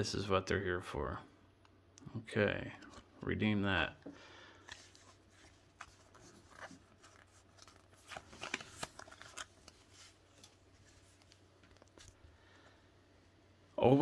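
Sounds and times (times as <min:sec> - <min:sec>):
trading cards flicking and scraping: 0:04.6 - 0:12.2.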